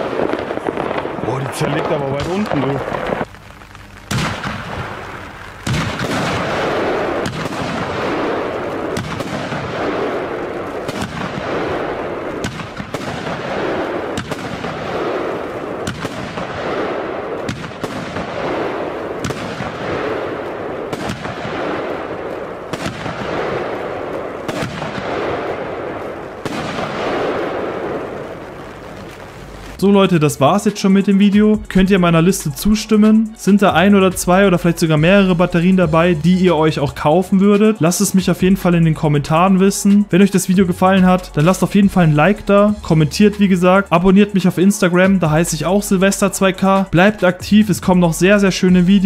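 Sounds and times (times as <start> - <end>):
firework bangs with echo: 0.0 - 3.3, 4.1 - 29.8.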